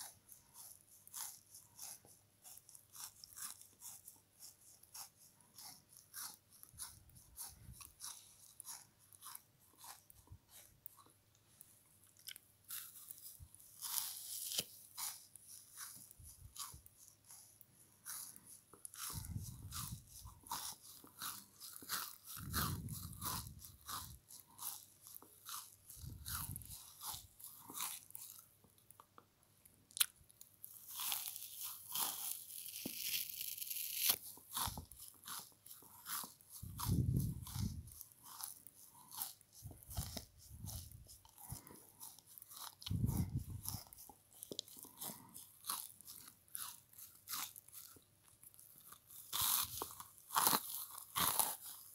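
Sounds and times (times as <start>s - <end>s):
crunching of fries being chewed: 11.9s - 17.5s, 18.1s - 51.9s.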